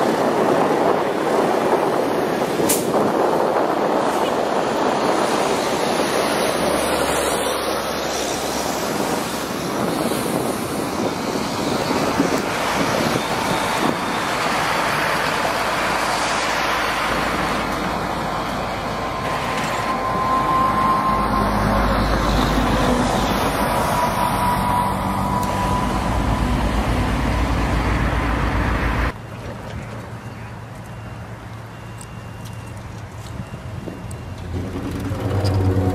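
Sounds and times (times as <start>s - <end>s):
diesel truck engine rumbling: 0.0s - 35.9s
tires on gravel: 29.5s - 35.9s.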